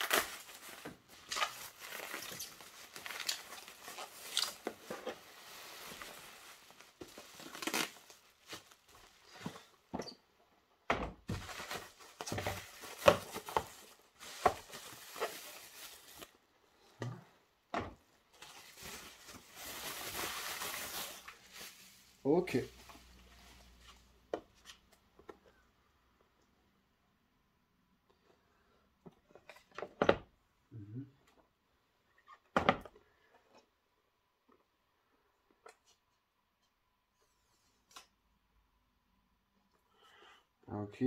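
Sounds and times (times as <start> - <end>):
bubble wrap crinkling: 0.0 - 9.7, 11.3 - 16.5, 18.3 - 23.2.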